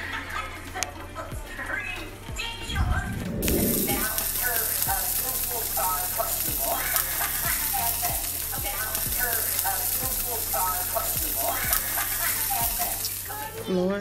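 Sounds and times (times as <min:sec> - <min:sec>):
low thumps and pitched notes: 0:01.3 - 0:10.3
fish sizzling in oil: 0:03.4 - 0:13.6.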